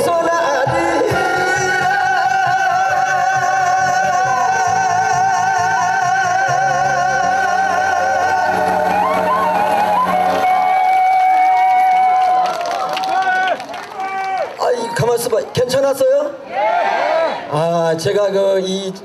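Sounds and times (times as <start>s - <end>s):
man singing with vibrato: 0.0s - 12.2s
musical accompaniment: 0.0s - 12.5s.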